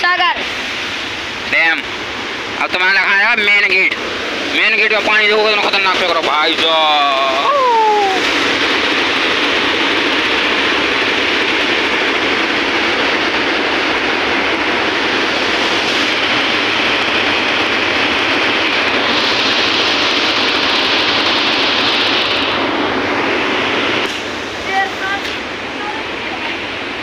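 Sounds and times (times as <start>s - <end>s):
water roaring from dam spillway: 0.0s - 27.0s.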